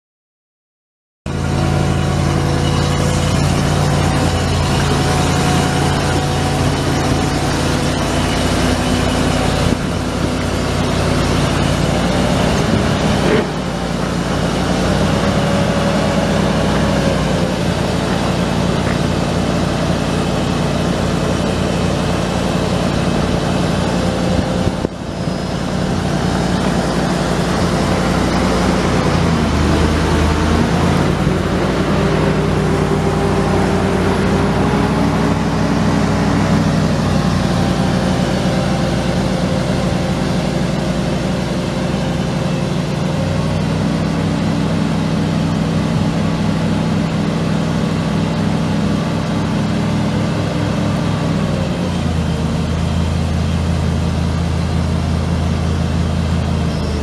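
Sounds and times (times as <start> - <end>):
truck engine idling: 1.3 - 57.0.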